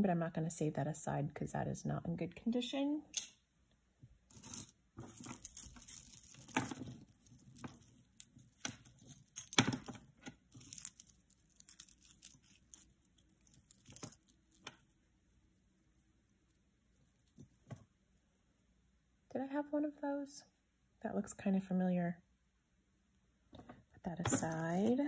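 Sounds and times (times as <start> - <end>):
metal bracelets clinking: 4.3 - 15.0, 17.0 - 17.8, 24.1 - 25.0
jewelry rustling: 4.3 - 18.3, 23.6 - 25.0.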